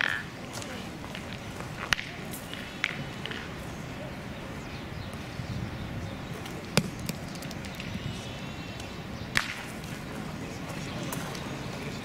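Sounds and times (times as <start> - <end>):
steel boules knocking: 0.0 - 0.3.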